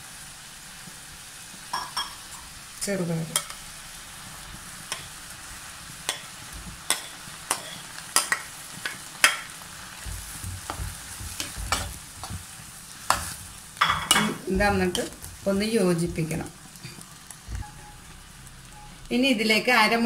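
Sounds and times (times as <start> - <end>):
steady sizzle: 0.0 - 20.0
spatula clicking on plate and pan: 6.1 - 6.3, 6.9 - 9.5, 10.1 - 12.5, 13.1 - 15.2
dull low knocks of stirring: 10.0 - 12.5, 17.4 - 18.2.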